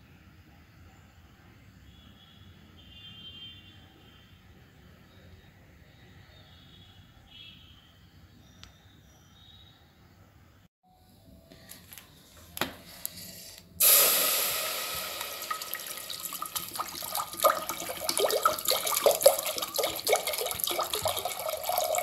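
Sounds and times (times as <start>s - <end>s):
water pouring into metal pot: 13.8s - 22.0s.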